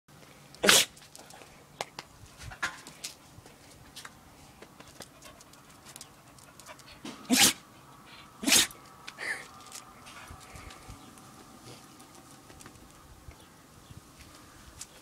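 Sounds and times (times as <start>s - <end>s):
dog sneezing: 0.6s - 1.0s, 7.3s - 7.6s, 8.4s - 8.7s.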